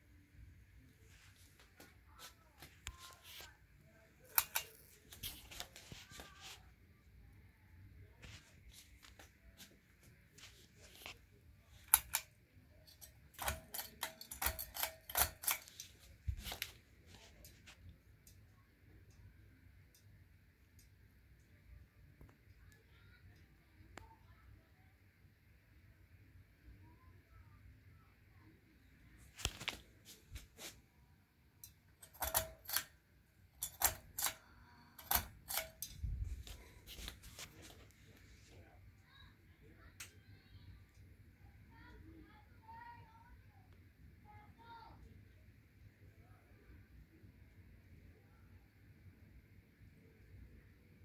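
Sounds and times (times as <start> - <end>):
ceiling fan pull chain clicks: 4.3 - 5.4, 11.8 - 16.7, 31.6 - 33.0, 33.6 - 36.6.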